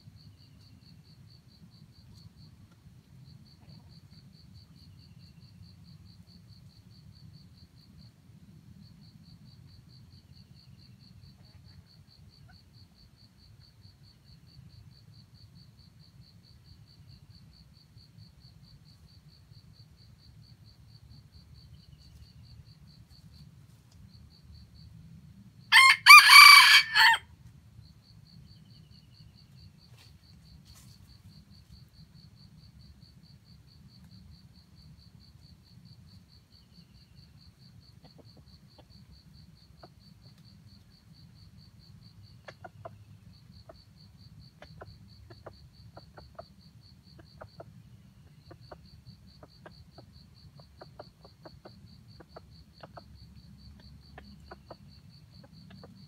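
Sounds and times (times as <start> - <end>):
rooster crowing: 25.7 - 27.3.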